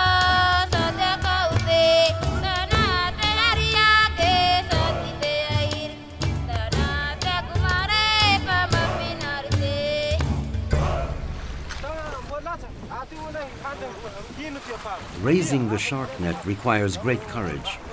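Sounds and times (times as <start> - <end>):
person singing with bending notes: 0.0 - 11.2.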